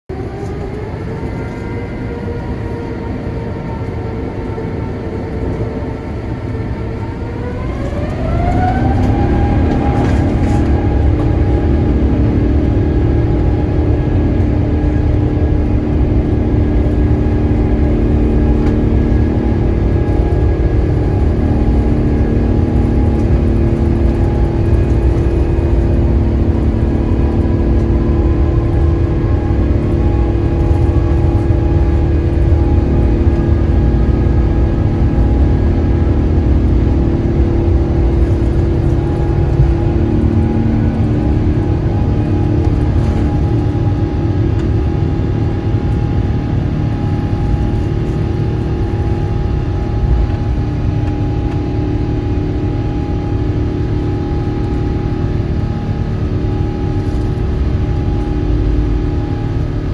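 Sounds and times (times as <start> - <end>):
jet engine whine and rumble: 0.1 - 59.9.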